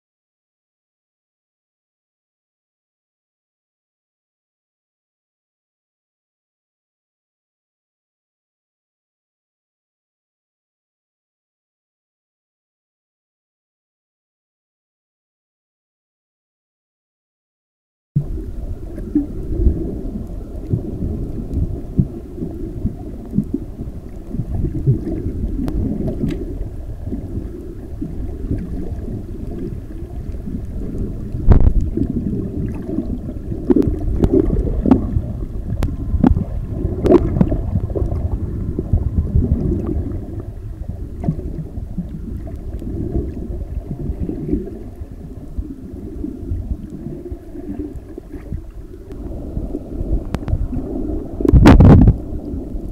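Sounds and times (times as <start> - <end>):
underwater churning water rumble: 18.2 - 52.9.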